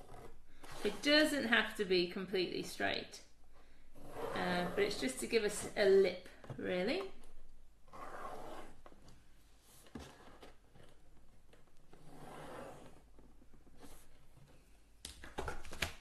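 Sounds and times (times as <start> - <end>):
pencil scratching on cardboard: 0.0 - 1.3, 4.0 - 5.2, 7.9 - 8.8, 12.0 - 13.0.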